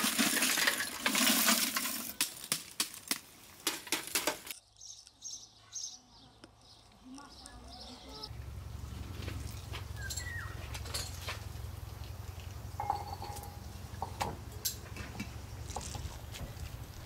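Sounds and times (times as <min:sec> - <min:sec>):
birds chirping: 0:04.5 - 0:14.6
wet squelches of squeezed zucchini: 0:09.1 - 0:10.6.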